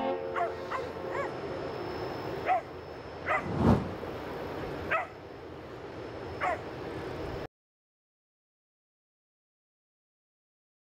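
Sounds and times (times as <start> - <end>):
steady background noise: 0.5 - 7.5.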